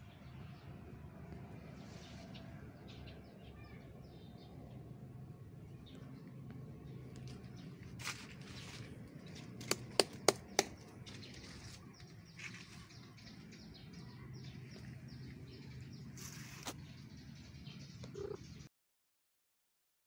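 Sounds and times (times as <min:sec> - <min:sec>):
faint bird chirps: 0:15.7 - 0:18.7.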